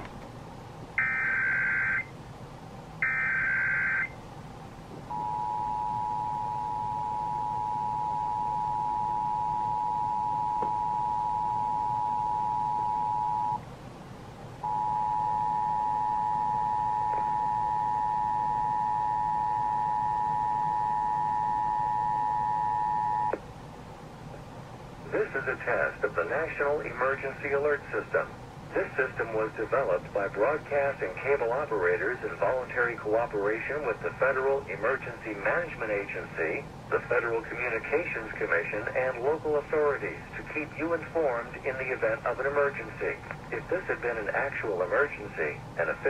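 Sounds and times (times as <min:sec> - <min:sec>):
two-tone alert signal: 0:05.1 - 0:13.6.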